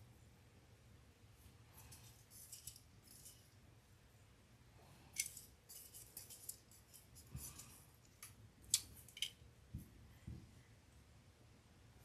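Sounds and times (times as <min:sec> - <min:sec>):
light clicks and scratches: 0:01.4 - 0:03.6, 0:05.0 - 0:10.6.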